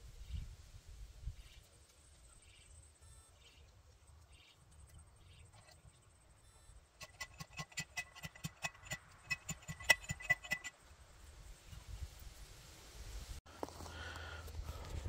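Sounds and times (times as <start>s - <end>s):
post driver clanking on metal post: 7.0s - 10.7s.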